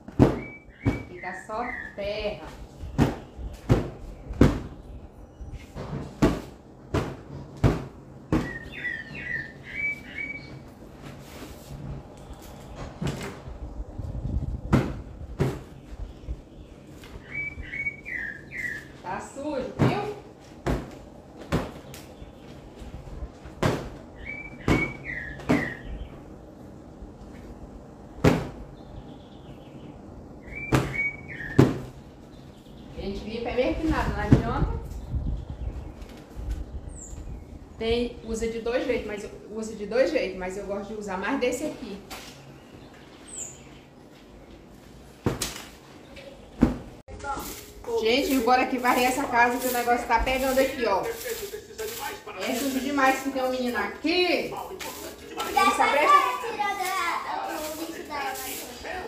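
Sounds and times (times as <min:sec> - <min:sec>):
bird chirping: 0:00.3 - 0:05.7, 0:08.3 - 0:10.7, 0:15.6 - 0:19.4, 0:24.2 - 0:26.4, 0:28.7 - 0:34.1, 0:42.3 - 0:44.6
cushions beaten on a sofa: 0:03.0 - 0:04.8, 0:05.8 - 0:08.6, 0:14.7 - 0:15.7, 0:19.8 - 0:21.9
cushions thumping on sofa: 0:19.8 - 0:21.9
high whistled chirps: 0:30.4 - 0:31.6.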